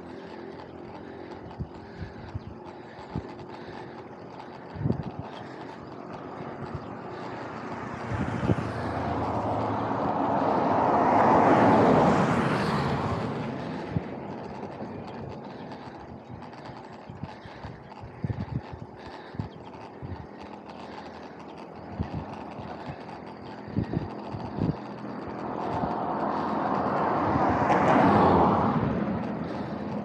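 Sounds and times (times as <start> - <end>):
pickup truck passing: 5.6 - 17.6, 19.0 - 30.0.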